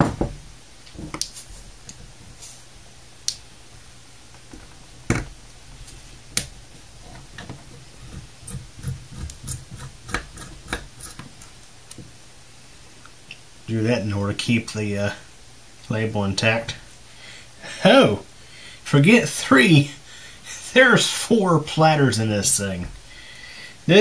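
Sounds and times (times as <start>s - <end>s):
small ticks and scrapes: 7.0s - 11.5s.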